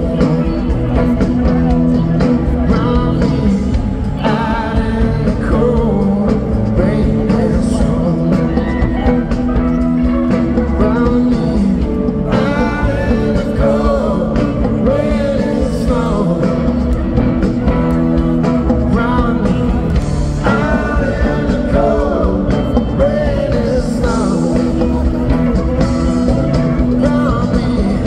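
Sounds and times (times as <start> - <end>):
electric guitar line: 0.0 - 28.0
live rock band playing: 0.0 - 28.0.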